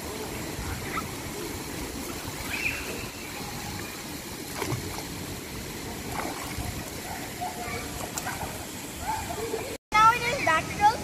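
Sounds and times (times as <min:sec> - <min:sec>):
pool water sloshing: 0:00.0 - 0:09.8
outdoor background noise: 0:00.0 - 0:11.0
water splash: 0:03.6 - 0:07.1.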